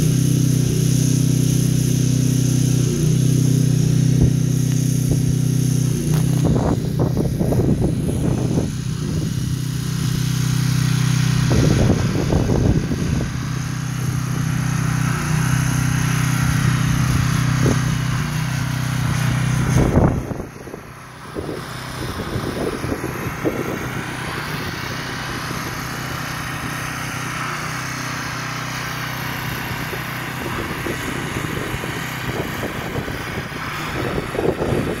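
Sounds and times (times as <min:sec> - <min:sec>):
engine hum: 0:00.0 - 0:35.0
wind on microphone: 0:04.2 - 0:14.4, 0:16.3 - 0:18.3, 0:18.9 - 0:26.8, 0:29.5 - 0:35.0.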